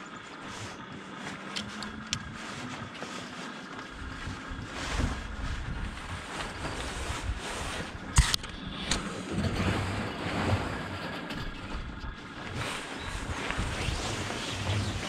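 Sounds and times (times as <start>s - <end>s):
water lapping at hull: 0.0s - 15.0s
wind buffeting microphone: 4.0s - 15.0s.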